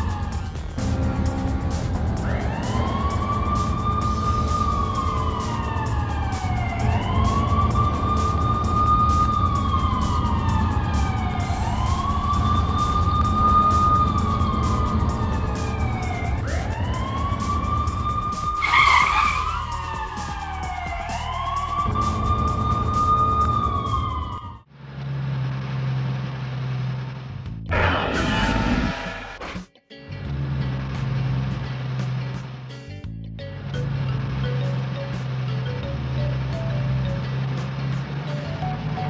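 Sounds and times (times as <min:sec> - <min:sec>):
police siren wailing: 0:00.0 - 0:24.7
low engine rumble: 0:00.2 - 0:18.5, 0:33.4 - 0:39.0.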